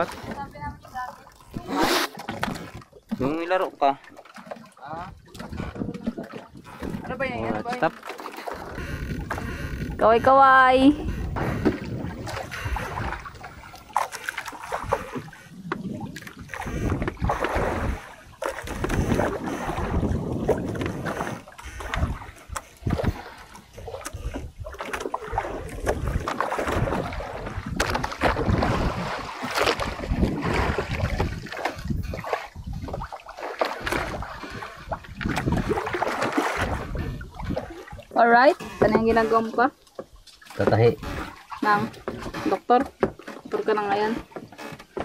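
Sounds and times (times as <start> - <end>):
water noise: 0.0 - 45.0
wind: 0.0 - 45.0
knocks on a boat: 8.5 - 13.3, 38.7 - 45.0.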